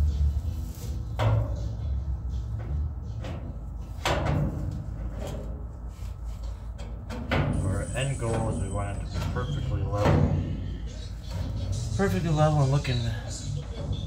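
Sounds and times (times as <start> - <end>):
hard metal clunks: 2.6 - 5.7, 6.7 - 7.7, 9.1 - 11.8.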